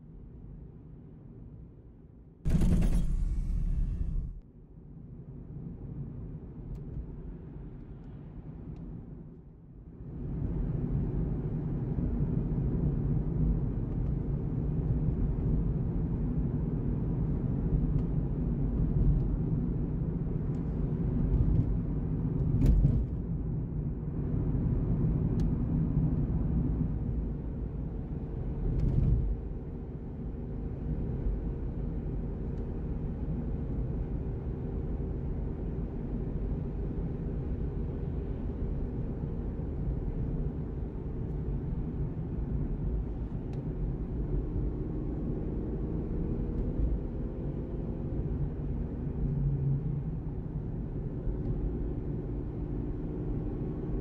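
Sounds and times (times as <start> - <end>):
brief knocks: 2.5 - 4.4
car road and engine rumble: 2.5 - 4.4, 10.0 - 54.0.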